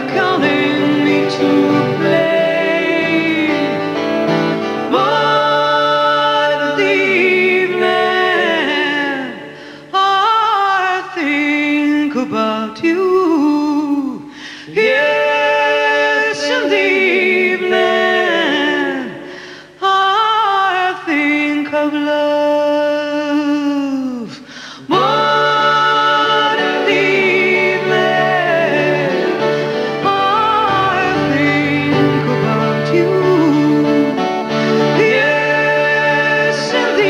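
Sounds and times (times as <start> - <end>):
woman singing: 0.0 - 3.7, 4.9 - 19.2, 19.8 - 29.4, 30.0 - 34.3
acoustic guitar: 0.0 - 11.4, 24.2 - 37.0
accordion chords: 25.0 - 37.0.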